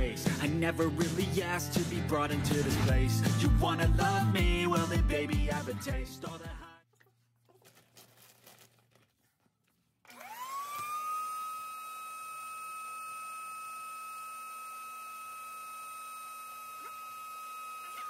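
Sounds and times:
vacuum cleaner motor whine: 10.1s - 18.0s.

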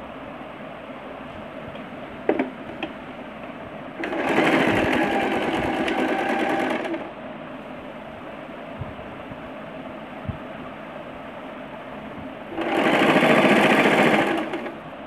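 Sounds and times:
steady background hiss: 0.0s - 15.0s
sewing machine stitching: 4.0s - 7.1s, 12.5s - 14.8s.

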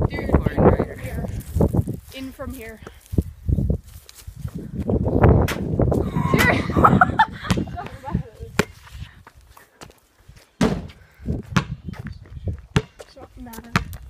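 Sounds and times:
basketball banging off backboard: 10.6s - 11.0s.

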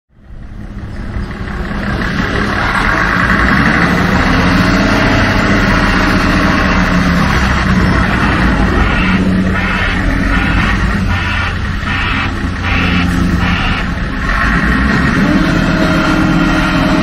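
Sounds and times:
heavy truck engine running: 0.1s - 17.0s.

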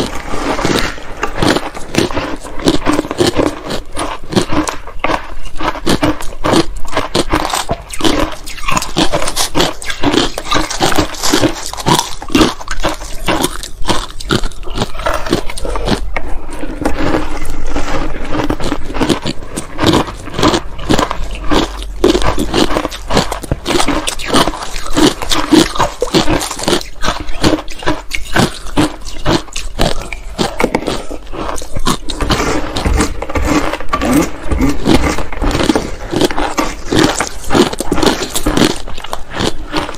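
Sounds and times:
chewing and crunching ice: 0.0s - 39.9s.

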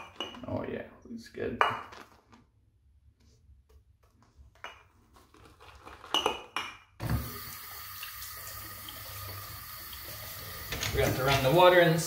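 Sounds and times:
tap water running: 7.0s - 12.0s.

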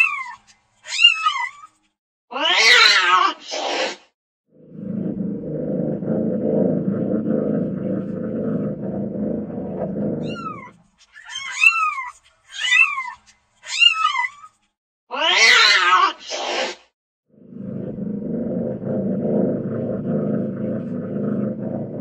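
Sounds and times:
low rumble: 4.6s - 10.8s, 17.3s - 22.0s.

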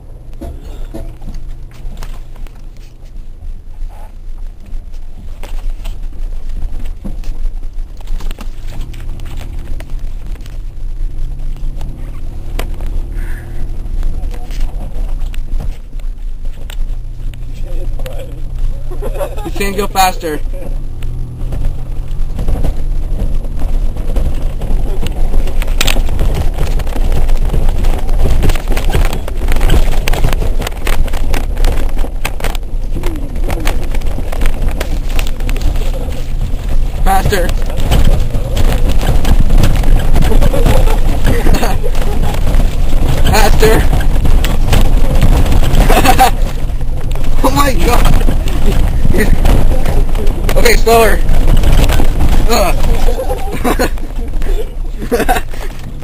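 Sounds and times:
engine and tyre rumble: 0.0s - 56.0s
knocks and rattles: 0.0s - 56.0s.

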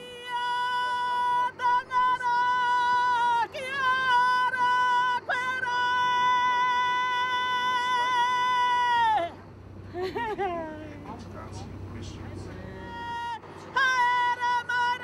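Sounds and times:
woman singing a chant: 0.0s - 9.4s, 13.0s - 15.0s.

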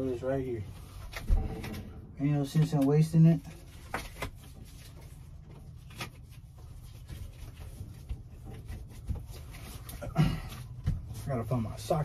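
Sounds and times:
hand handling knocks and rustles: 3.6s - 11.4s.

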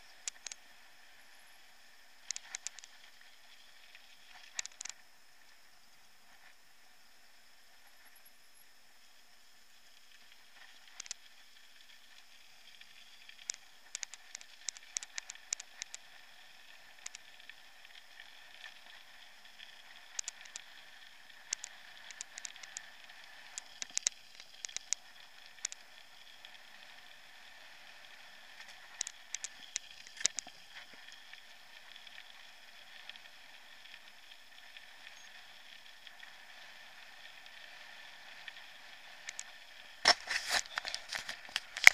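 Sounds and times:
bike tyres rolling on gravel: 39.3s - 41.9s.

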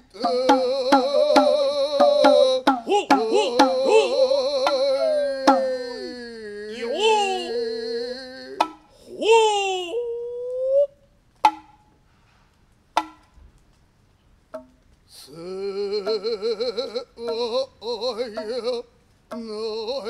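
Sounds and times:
chanting with wavering vibrato: 0.0s - 8.6s
drummer's long vocal call: 0.0s - 10.9s, 15.1s - 20.0s.

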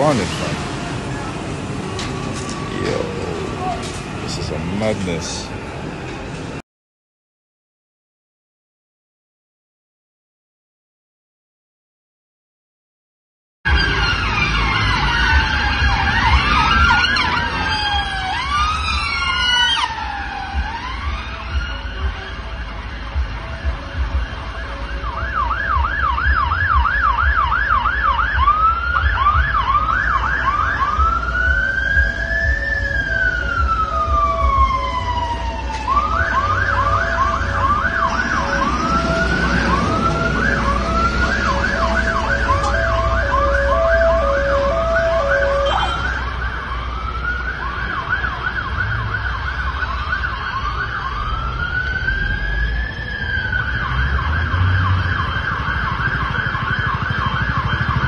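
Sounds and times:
fainter second siren: 0.0s - 6.0s, 13.7s - 58.0s
traffic rumble: 0.0s - 6.6s, 13.7s - 58.0s
siren yelp and wail: 0.1s - 5.6s, 13.7s - 58.0s
low two-note siren tone: 13.7s - 47.2s, 47.8s - 58.0s.

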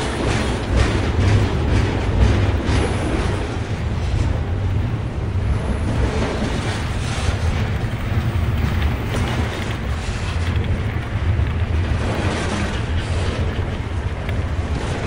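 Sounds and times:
model train rumbling on track: 0.0s - 15.0s
faint clicks: 7.3s - 14.9s.

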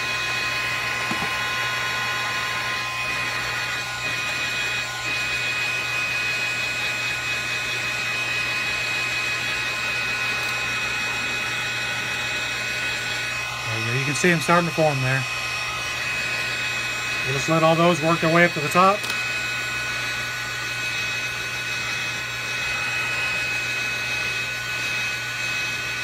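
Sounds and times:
heat gun blowing hiss with whine: 0.0s - 26.0s.

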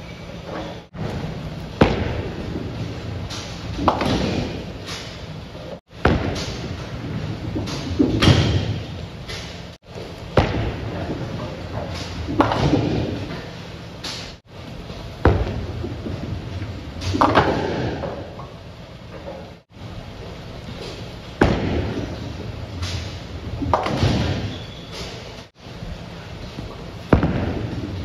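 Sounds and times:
bowling pins crashing: 1.0s - 4.8s, 21.4s - 24.8s
bowling ball rolling: 15.2s - 19.6s, 21.4s - 24.8s
bowling alley din: 21.2s - 25.5s.

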